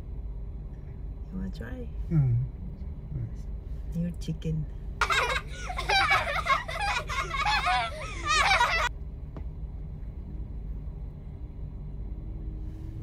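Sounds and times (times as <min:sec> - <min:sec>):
engines idling hum: 0:00.0 - 0:13.0
high-pitched giggling laughter: 0:05.0 - 0:08.9.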